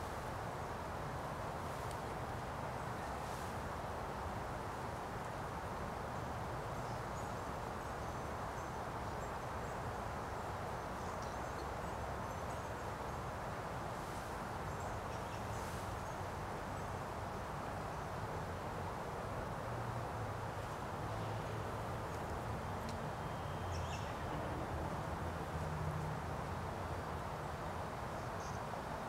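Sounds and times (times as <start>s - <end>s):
steady outdoor hiss: 0.0s - 29.0s.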